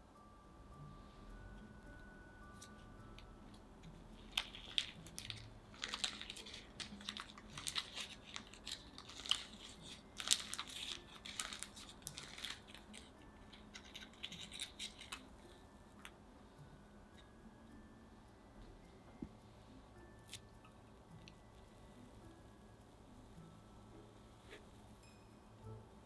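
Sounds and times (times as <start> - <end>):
paper liner crinkling and tearing: 4.3 - 15.3.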